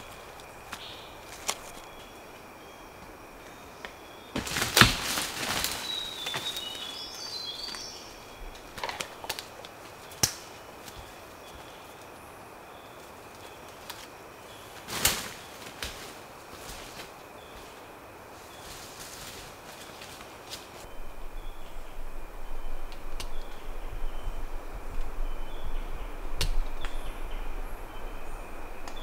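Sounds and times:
undergrowth rustling and snapping: 0.0s - 2.4s, 3.8s - 21.0s, 22.9s - 24.2s, 24.9s - 29.0s
steady high hum: 5.3s - 29.0s
bird chirps: 5.8s - 13.8s.

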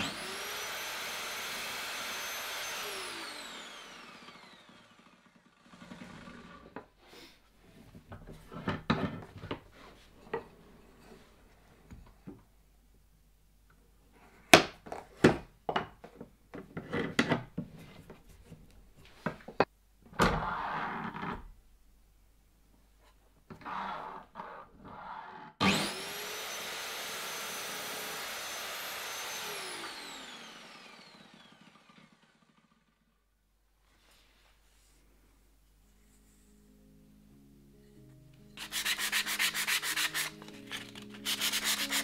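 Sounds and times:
miter saw motor whining: 0.0s - 6.7s, 25.6s - 32.8s.

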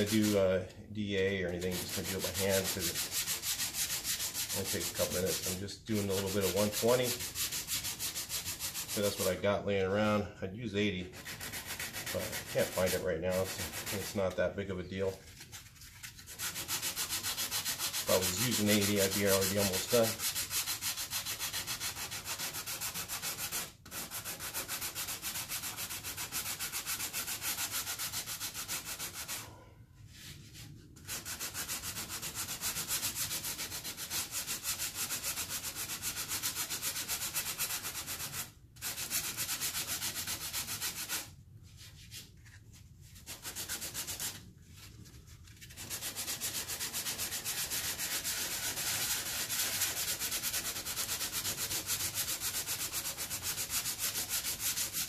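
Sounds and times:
hand sanding with sandpaper: 0.0s - 10.2s, 11.0s - 55.0s.

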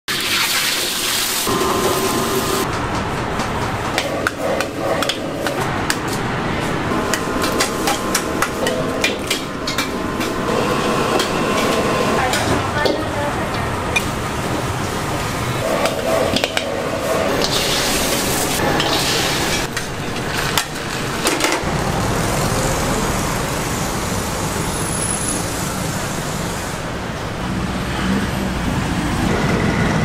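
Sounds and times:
sizzling in a wok: 0.1s - 2.6s
street traffic rumble: 1.4s - 30.0s.

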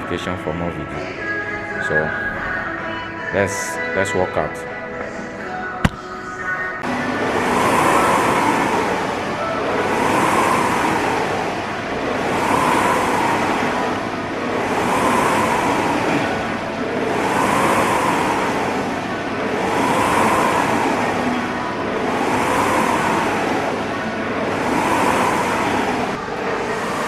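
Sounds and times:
rowing machine flywheel whooshing: 6.8s - 27.0s.

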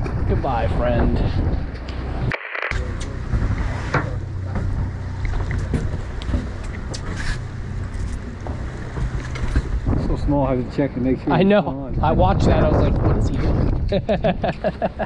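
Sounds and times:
boat engine droning: 0.0s - 11.7s
wind noise on microphone: 0.0s - 15.0s.

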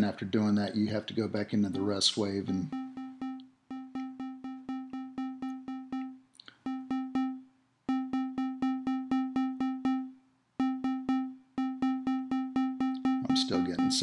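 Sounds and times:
repeated synth bass note: 1.7s - 14.0s.

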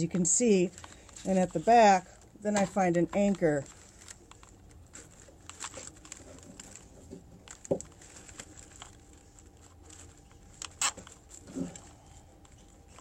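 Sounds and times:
zip tie clicks and rustling: 3.3s - 13.0s.

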